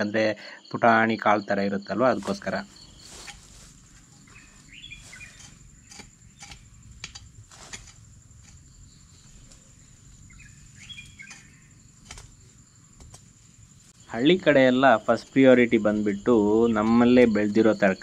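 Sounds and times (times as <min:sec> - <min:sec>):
high insect drone: 0:00.0 - 0:18.0
bird chirping call: 0:01.9 - 0:06.6, 0:09.0 - 0:11.8
digging tool striking soil: 0:02.2 - 0:08.6, 0:10.8 - 0:12.4.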